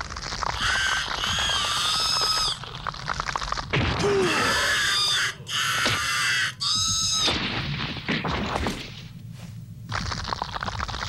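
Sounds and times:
monster screeching cries: 0.5 - 2.6, 4.0 - 7.3.

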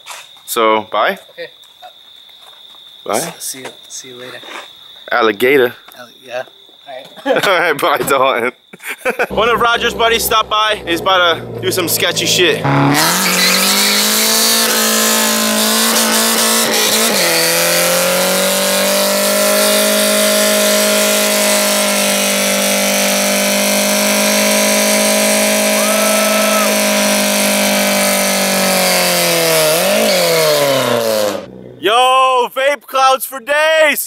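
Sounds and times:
car engine revving during burnout: 9.3 - 31.8.

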